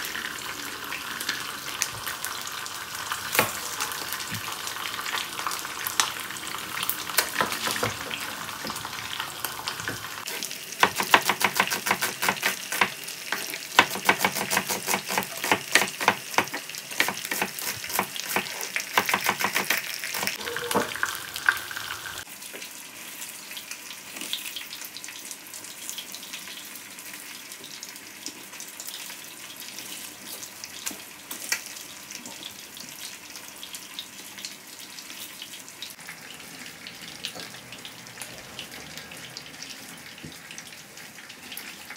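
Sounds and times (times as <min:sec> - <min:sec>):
food sizzling in oil: 0:00.0 - 0:41.9.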